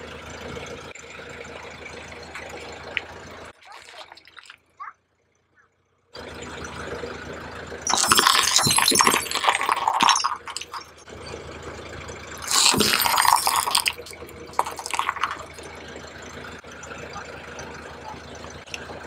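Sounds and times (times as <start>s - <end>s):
low engine hum: 0.0s - 3.6s, 5.0s - 7.9s, 10.9s - 12.5s, 15.2s - 19.0s
tyre crunching over wet grit: 3.7s - 4.6s.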